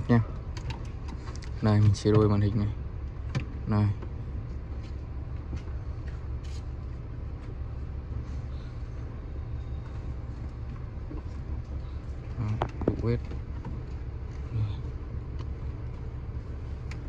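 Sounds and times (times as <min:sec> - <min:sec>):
car cabin rumble: 0:00.0 - 0:17.0.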